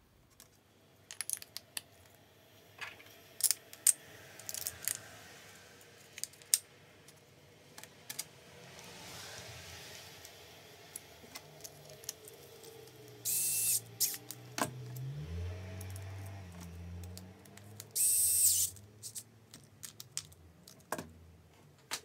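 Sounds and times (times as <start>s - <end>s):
small parts clicking and clinking: 0.3s - 2.2s, 2.8s - 5.1s, 6.1s - 7.2s, 10.2s - 15.1s, 15.8s - 21.1s.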